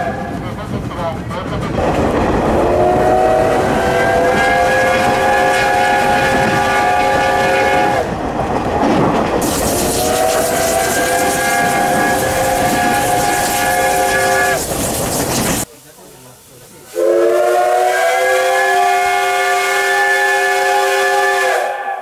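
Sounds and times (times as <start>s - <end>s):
train running on rails: 0.0s - 22.0s
steam whistle blasts: 2.6s - 8.1s, 9.7s - 14.6s, 16.9s - 22.0s.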